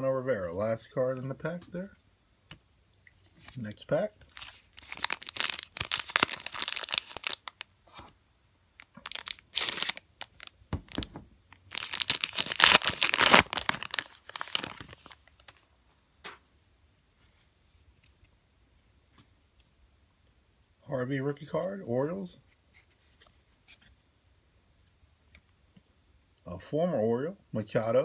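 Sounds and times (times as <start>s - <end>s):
foil wrapper tearing and crinkling: 4.2s - 7.6s, 8.8s - 10.6s, 11.5s - 15.6s.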